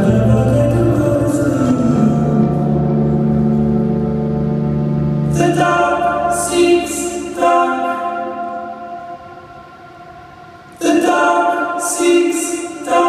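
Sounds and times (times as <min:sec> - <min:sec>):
low pulsing bass: 0:00.0 - 0:07.4
slow layered singing: 0:00.0 - 0:13.0.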